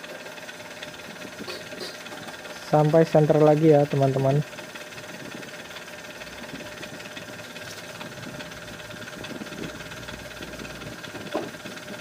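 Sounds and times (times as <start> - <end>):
milling machine humming: 0.0 - 12.0.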